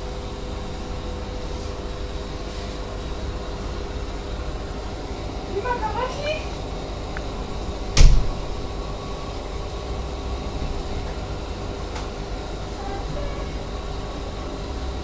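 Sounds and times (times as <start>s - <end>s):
aquarium equipment humming: 0.0s - 15.0s
loud thump: 8.0s - 8.5s.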